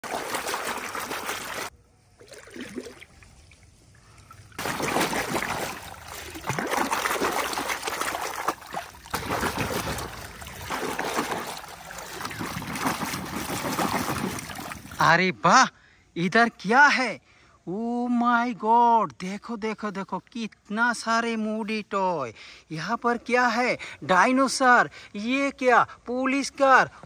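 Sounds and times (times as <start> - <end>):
muddy water splashing: 0.0 - 15.1.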